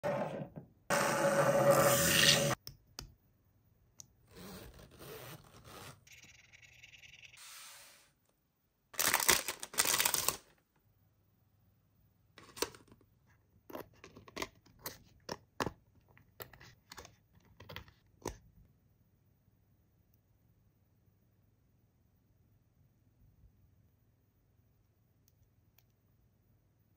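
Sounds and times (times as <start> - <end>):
plastic packaging tearing and crinkling: 9.0 - 10.5.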